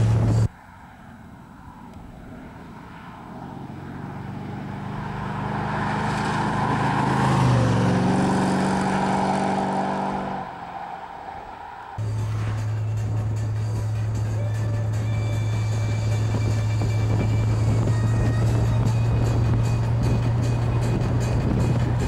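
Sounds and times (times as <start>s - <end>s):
car driving past: 0.0s - 14.0s
steady drone: 11.9s - 22.0s.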